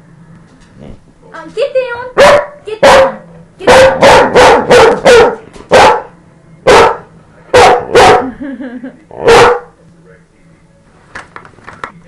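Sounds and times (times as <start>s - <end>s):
dog barking: 2.2s - 8.4s, 9.2s - 9.8s.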